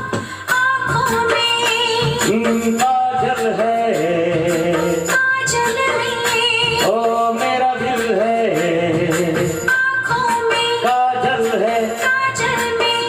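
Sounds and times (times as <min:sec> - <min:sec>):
recorded music with steady beat: 0:00.0 - 0:13.0
man singing into a microphone: 0:02.2 - 0:05.1, 0:06.8 - 0:09.7, 0:10.8 - 0:12.1.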